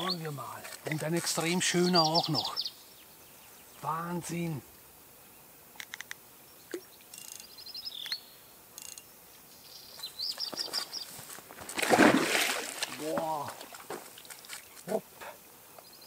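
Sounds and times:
small birds chirping: 0:00.0 - 0:11.3, 0:13.3 - 0:16.0
fish splashing in water: 0:11.7 - 0:14.6.

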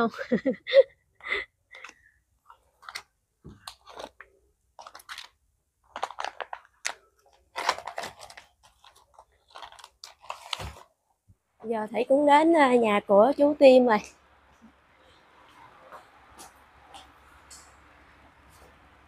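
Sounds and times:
plastic bags crinkling: 0:01.8 - 0:11.0.

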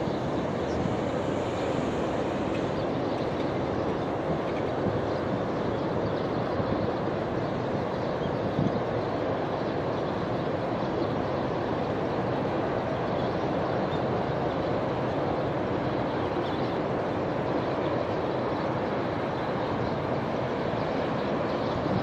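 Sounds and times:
choppy river water: 0:00.0 - 0:22.0.

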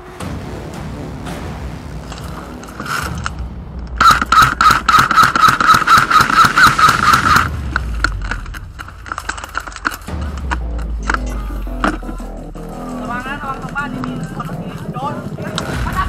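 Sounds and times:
airsoft rifle full-auto burst: 0:04.0 - 0:07.5.

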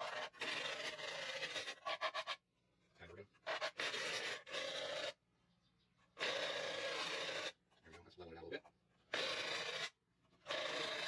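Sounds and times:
plastic cup scraping on sandpaper: 0:00.0 - 0:02.5, 0:03.4 - 0:05.2, 0:06.1 - 0:08.0.

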